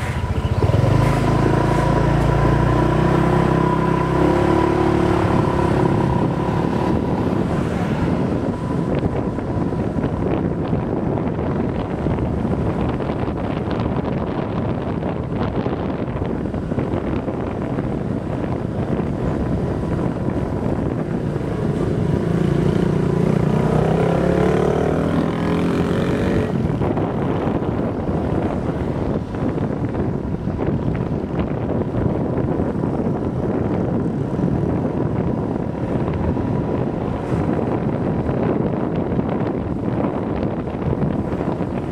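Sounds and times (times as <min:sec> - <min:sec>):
motorbike engine revving: 0:00.0 - 0:11.6, 0:19.0 - 0:29.8
wind buffeting microphone: 0:00.0 - 0:41.9.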